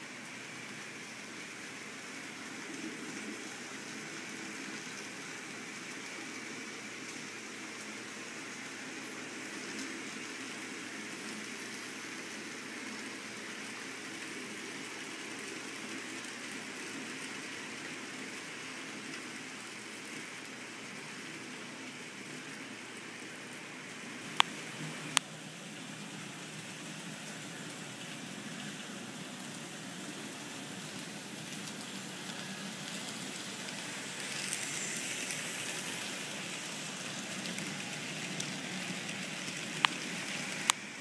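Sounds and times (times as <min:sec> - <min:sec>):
model train motors whirring: 0:00.0 - 0:41.0.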